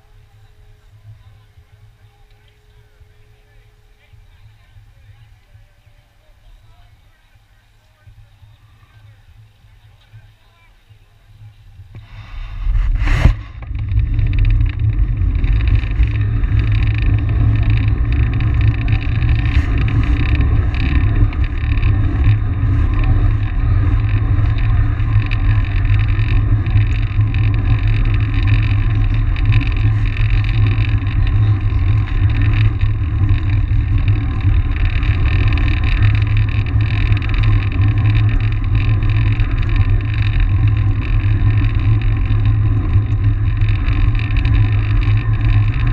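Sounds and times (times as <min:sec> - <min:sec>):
wind buffeting microphone: 0:00.0 - 0:45.9
tyres rolling on concrete: 0:13.6 - 0:45.9.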